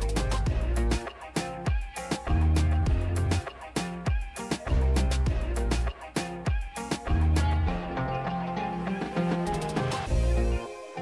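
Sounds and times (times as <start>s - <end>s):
music with drum beat and bass: 0.0s - 11.0s.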